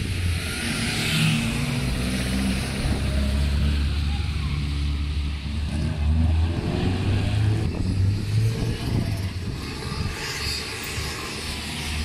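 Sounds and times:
rally car engine revving: 0:05.4 - 0:12.0.

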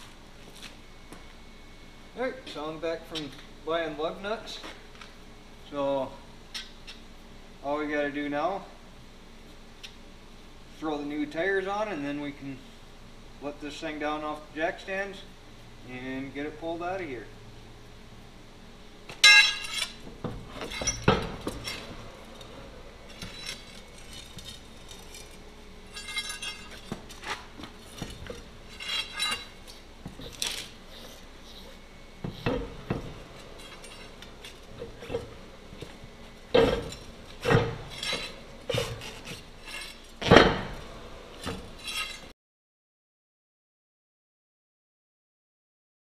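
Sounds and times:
metal clanks and clinks: 0:19.2 - 0:30.7, 0:32.2 - 0:40.8, 0:41.4 - 0:42.3.

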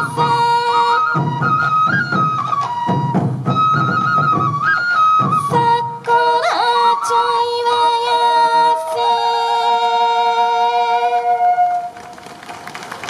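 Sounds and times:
bamboo flutes holding notes: 0:00.0 - 0:12.4.

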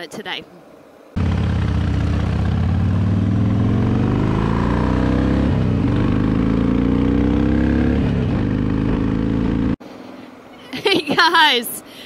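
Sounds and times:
motorcycle engine accelerating: 0:01.2 - 0:09.8.

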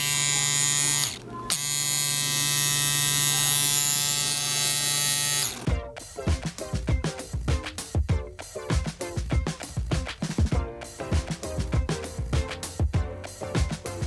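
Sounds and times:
tattoo pen electric buzz: 0:00.0 - 0:05.7
rhythmic music: 0:05.6 - 0:14.0.

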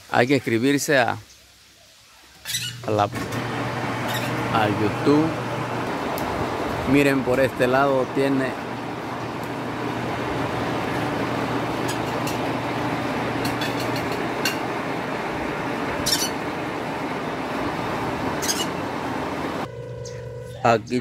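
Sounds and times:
low mechanical hum with rushing: 0:02.8 - 0:21.0.

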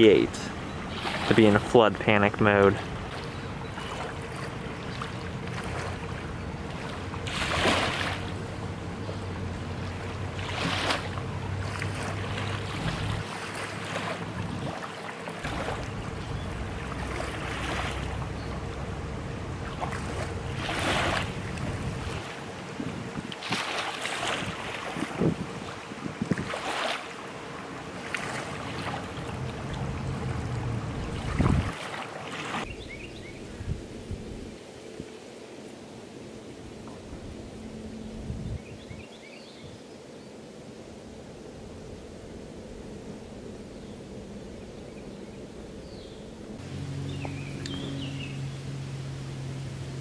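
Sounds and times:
low steady rumble: 0:00.0 - 0:23.4, 0:27.1 - 0:31.8, 0:36.6 - 0:39.1, 0:40.8 - 0:50.0
water splashing: 0:00.0 - 0:32.7
river water lapping: 0:00.0 - 0:50.0
wind on microphone: 0:09.2 - 0:18.6, 0:19.6 - 0:27.0, 0:28.2 - 0:35.2, 0:36.6 - 0:39.9.

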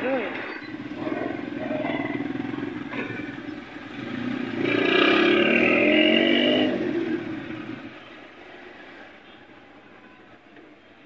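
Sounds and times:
vehicles idling in traffic: 0:00.1 - 0:11.0
louder pitched vehicle sound: 0:00.5 - 0:08.9.

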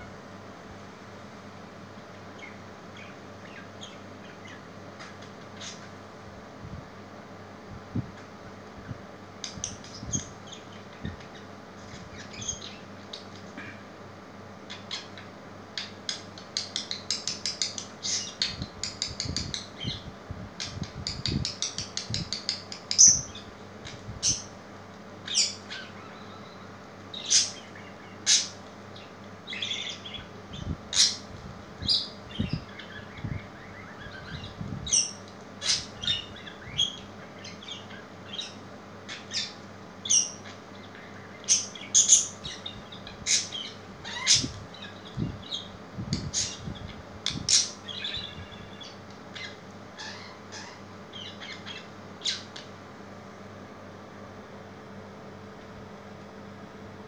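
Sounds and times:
budgerigar chirping: 0:47.5 - 0:52.5.

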